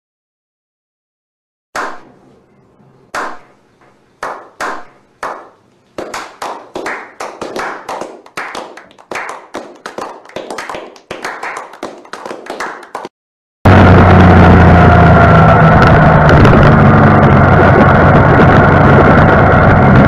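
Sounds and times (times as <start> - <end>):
hands clapping with echo: 1.8 - 2.1, 3.2 - 3.5, 4.2 - 13.1
group clapping: 3.2 - 3.5, 4.2 - 13.2.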